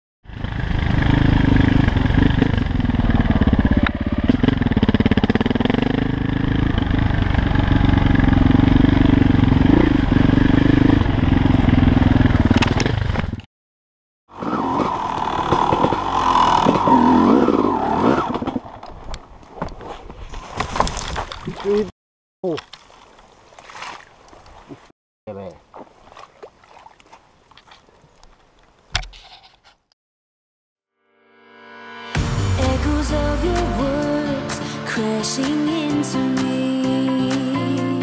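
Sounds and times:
dirt bike engine running: 0:00.3 - 0:13.4.

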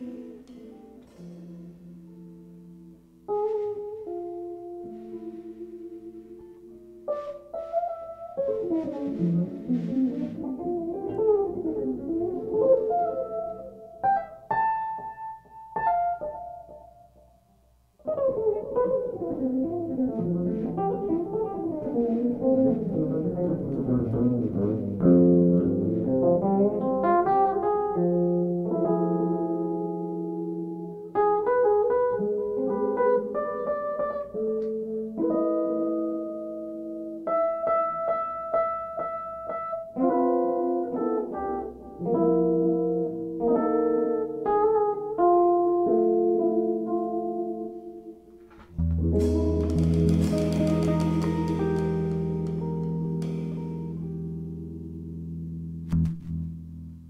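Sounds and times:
drum kit: 0:00.0 - 0:13.4, 0:48.4 - 0:54.2
electric guitar: 0:00.0 - 0:17.2, 0:18.0 - 0:57.0
electric bass: 0:19.3 - 0:27.0, 0:48.6 - 0:57.0.

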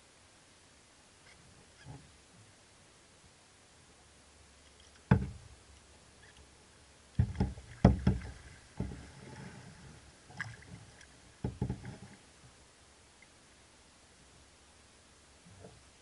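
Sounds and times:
kayak paddle splashes: 0:07.2 - 0:12.3.

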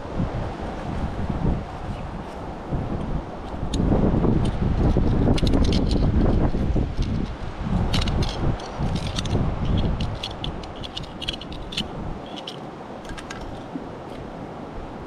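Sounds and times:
knife scraping against rock: 0:03.5 - 0:13.7.

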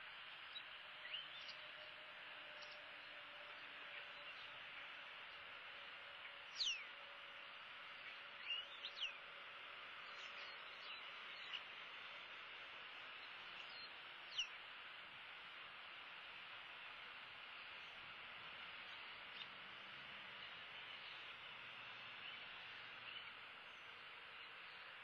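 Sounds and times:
steady hiss: 0:00.0 - 0:25.0
high whistled bird calls: 0:06.5 - 0:06.9, 0:08.0 - 0:09.2.

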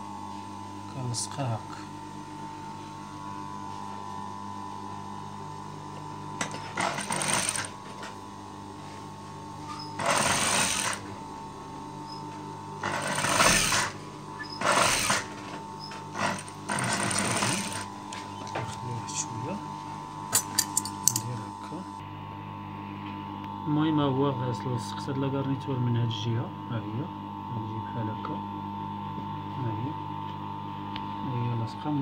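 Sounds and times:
motor hum: 0:00.0 - 0:32.0
sewing machine stitching: 0:06.4 - 0:07.8, 0:09.7 - 0:11.1, 0:12.8 - 0:18.2.

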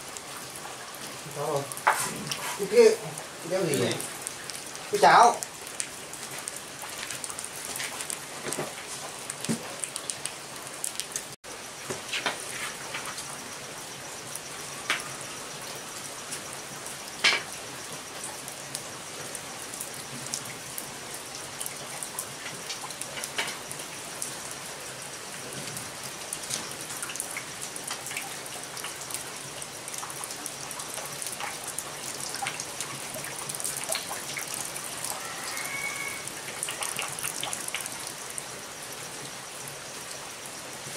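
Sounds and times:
rain hiss: 0:00.0 - 0:40.9
wood fire clicks and knocks: 0:06.8 - 0:10.3.

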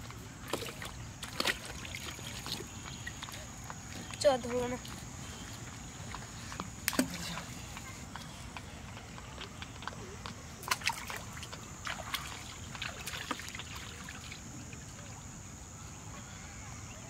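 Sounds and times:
shallow water splashing: 0:00.4 - 0:07.8, 0:10.6 - 0:15.2.

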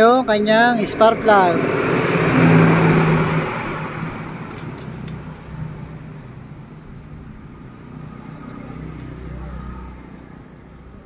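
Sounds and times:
low hum: 0:00.0 - 0:08.9
vehicle engine passing by: 0:00.0 - 0:11.0
light clicks: 0:08.0 - 0:09.2.

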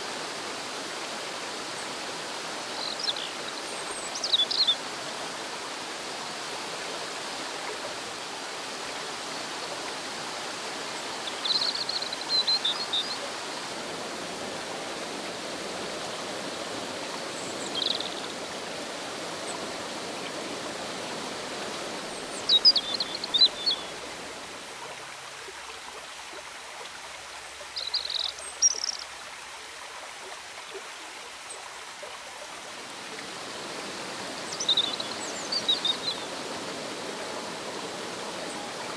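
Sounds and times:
river rushing over stones: 0:00.0 - 0:38.9
small birds chirping: 0:04.0 - 0:04.8, 0:11.2 - 0:13.2, 0:17.4 - 0:18.3, 0:22.4 - 0:23.9, 0:27.8 - 0:29.1, 0:34.4 - 0:36.4.

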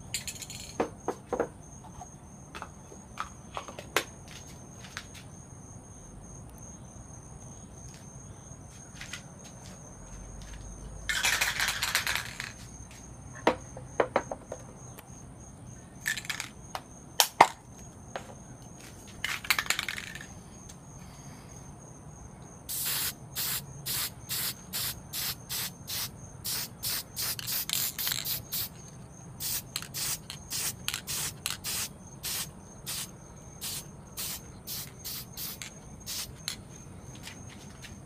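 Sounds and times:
spray paint can hissing: 0:22.7 - 0:28.8, 0:29.4 - 0:36.6
spray can handling clicks: 0:26.8 - 0:28.8, 0:29.4 - 0:31.9.

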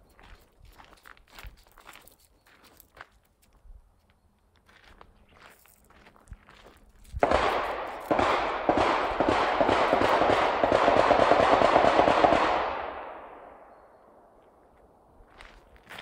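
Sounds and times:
machine-gun fire: 0:07.2 - 0:13.4.

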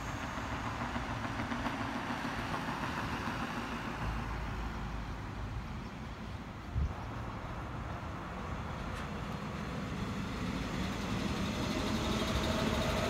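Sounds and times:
train wheels rumbling: 0:00.0 - 0:05.3, 0:08.7 - 0:13.0.

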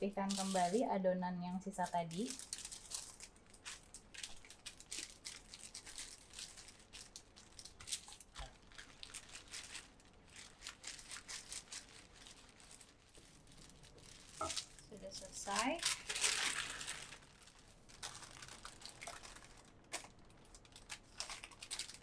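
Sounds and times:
baking paper crinkling: 0:00.0 - 0:00.9, 0:01.6 - 0:22.0.

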